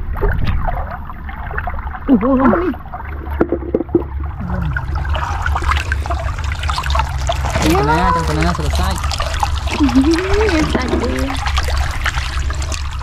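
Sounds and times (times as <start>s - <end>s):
water gushing from pipe: 0.0s - 13.0s
feet wading through water: 4.3s - 13.0s.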